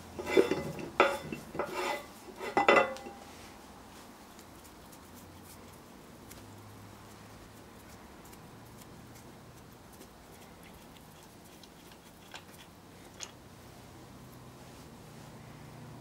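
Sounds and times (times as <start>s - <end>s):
light clicks of handling metal parts: 0.2s - 3.3s.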